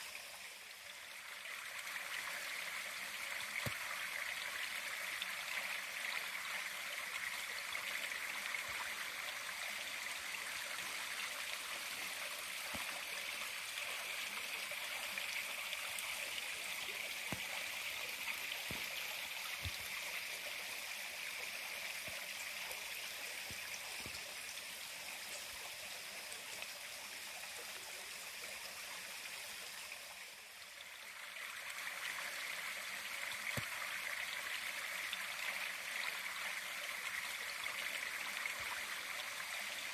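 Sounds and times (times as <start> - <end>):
flowing creek water: 0.0 - 39.9.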